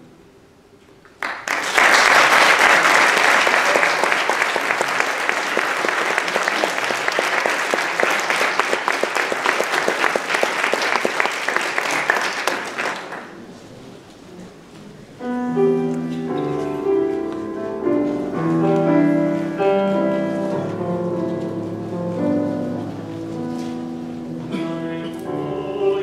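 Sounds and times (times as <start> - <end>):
audience applauding: 1.1 - 13.5.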